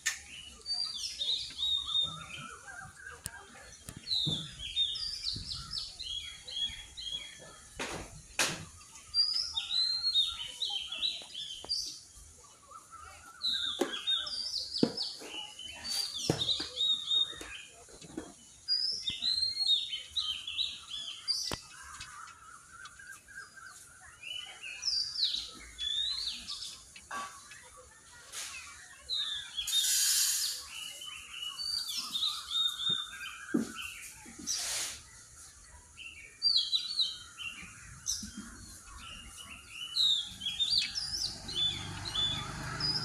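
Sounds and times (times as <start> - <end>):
birds singing high notes: 29.0 - 34.9, 38.6 - 43.0.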